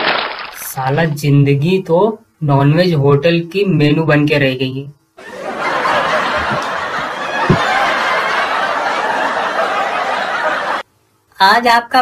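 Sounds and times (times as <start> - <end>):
audience laughter: 5.2 - 10.8
low thump: 7.4 - 7.8.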